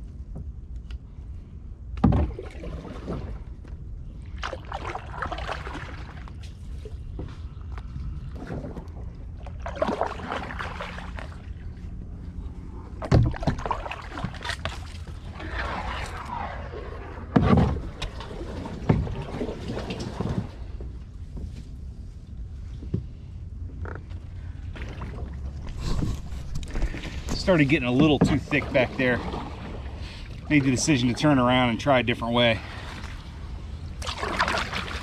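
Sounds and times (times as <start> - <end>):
paddle splashing in water: 2.0 - 3.5, 4.3 - 7.2, 8.3 - 11.9, 13.0 - 20.8, 24.7 - 31.6, 32.6 - 35.0.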